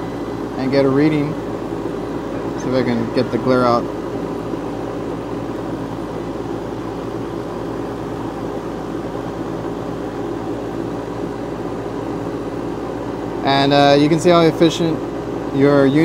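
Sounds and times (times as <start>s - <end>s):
air conditioning unit humming: 0.0s - 16.0s.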